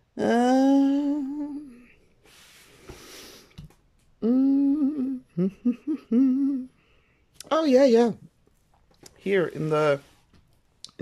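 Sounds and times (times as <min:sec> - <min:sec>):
woman humming: 0:00.0 - 0:02.0, 0:04.2 - 0:06.7
soft rustle: 0:08.4 - 0:10.6.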